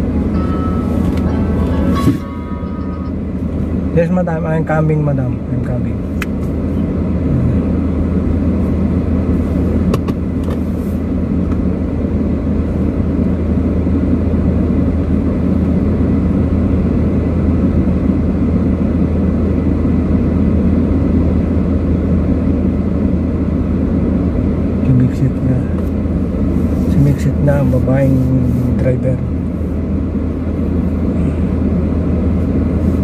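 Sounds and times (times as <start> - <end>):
car engine and tyres rumble: 0.0 - 33.0.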